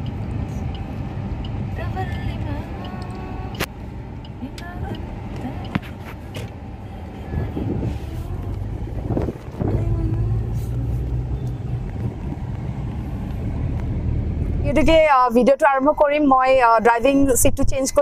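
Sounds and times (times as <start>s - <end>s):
car engine and road noise: 0.0s - 18.0s.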